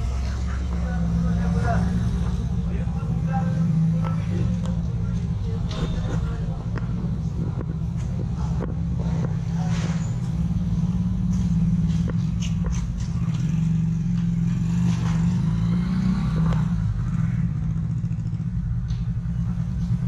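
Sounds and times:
distant voices: 0.0s - 20.0s
vehicles running close by: 0.0s - 20.0s.

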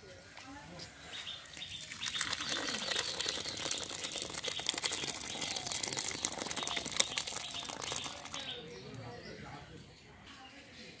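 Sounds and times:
crackling sizzle: 1.9s - 8.6s.

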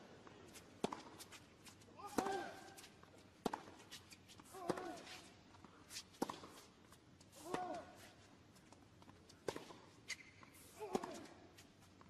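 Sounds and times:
racket striking tennis ball: 0.8s - 1.2s, 2.0s - 2.8s, 3.4s - 3.8s, 10.8s - 11.4s.

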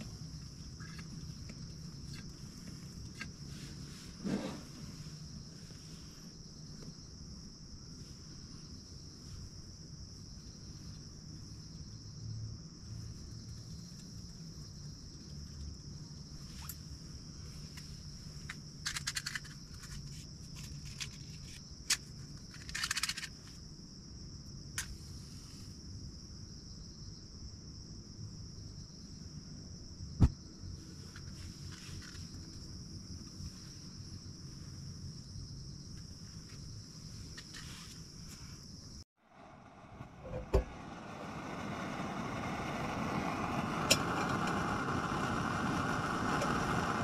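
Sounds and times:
insects chorus: 0.0s - 47.0s
camp utensils rattling and clicking: 18.8s - 23.4s.

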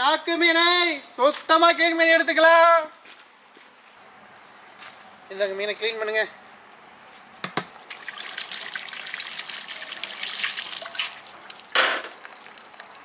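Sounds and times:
water dripping off a plate: 7.8s - 13.0s
water gushing: 7.8s - 13.0s.

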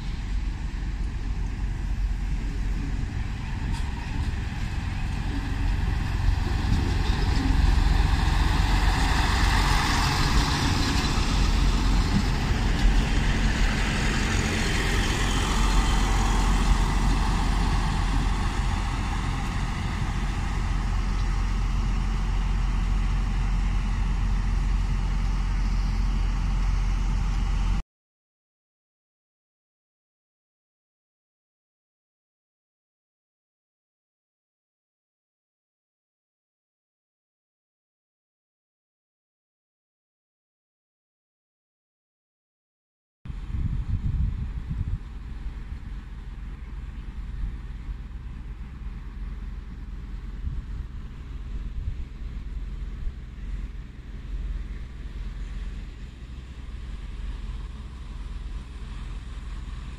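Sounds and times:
diesel train passing: 0.0s - 27.8s, 43.3s - 59.9s.

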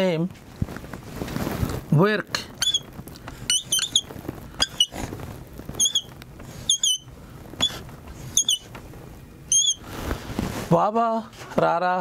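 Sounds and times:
marker tip rubbing: 2.6s - 2.8s, 3.5s - 5.0s, 5.8s - 6.1s, 6.7s - 8.7s, 9.5s - 9.8s
marker squeaking on whiteboard: 2.6s - 2.9s, 3.5s - 5.0s, 5.7s - 8.8s, 9.5s - 9.8s.

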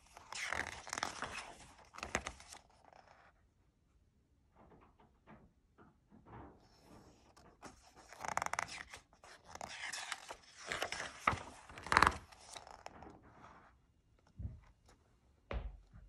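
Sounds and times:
paper page rustling: 0.0s - 3.2s, 7.3s - 13.0s
page slapping flat: 0.1s - 3.0s, 7.6s - 13.0s.

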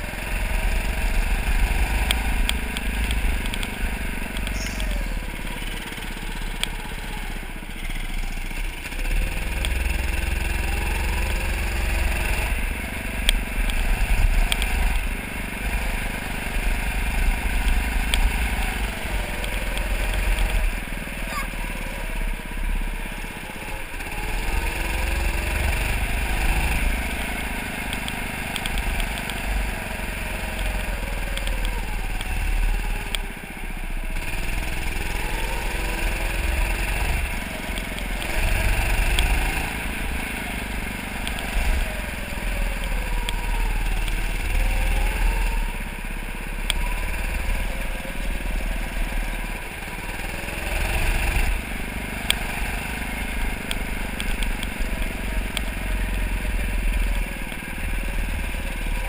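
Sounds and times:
go-kart engine revving: 0.0s - 59.0s.

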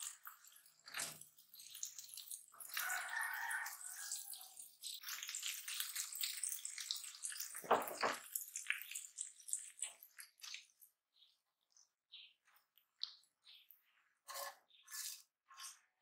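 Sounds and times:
eggs sizzling in frying pan: 0.0s - 11.1s
spatula scraping pan: 13.8s - 16.0s.

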